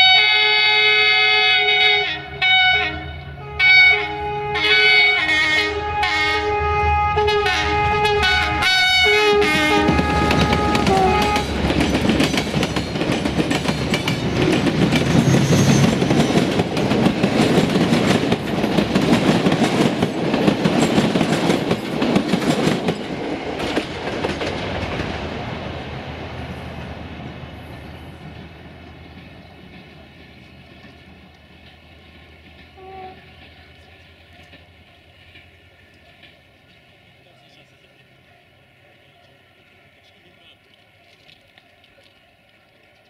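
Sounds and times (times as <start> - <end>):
locomotive horn chords: 0.0 - 11.6, 32.8 - 33.4
train wheels clacking over rails: 9.7 - 25.2, 28.0 - 38.1.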